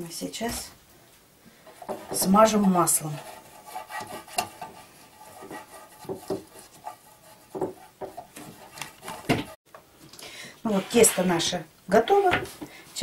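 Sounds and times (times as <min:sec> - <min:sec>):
pastry brush tapping and scraping tin: 0:01.7 - 0:04.8, 0:05.4 - 0:09.6.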